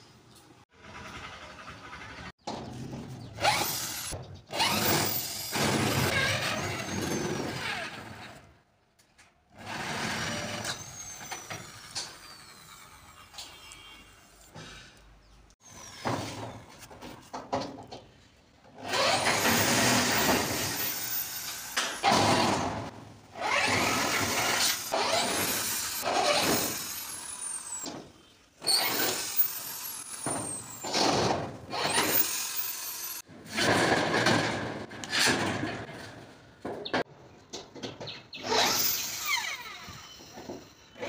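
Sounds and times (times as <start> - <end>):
electric drill bursts: 28.6 - 30.9, 31.7 - 33.2, 38.4 - 40.6.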